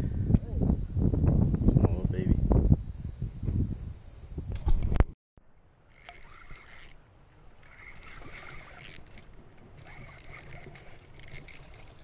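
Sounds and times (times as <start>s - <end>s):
fishing reel whirring and clicking: 5.9s - 7.0s, 7.6s - 12.0s.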